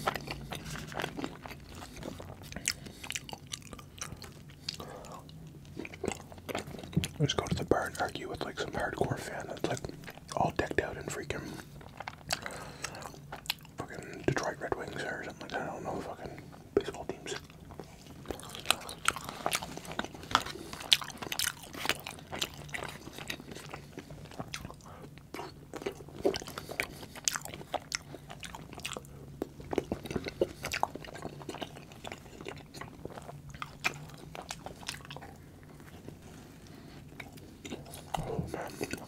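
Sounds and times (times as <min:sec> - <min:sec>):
crunchy chewing of fries: 0:00.0 - 0:39.0.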